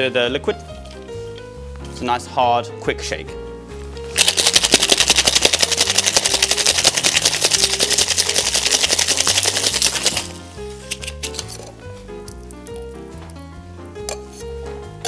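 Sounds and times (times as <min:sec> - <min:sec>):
background music: 0:00.0 - 0:15.0
ice rattling in cocktail shaker: 0:04.2 - 0:11.5.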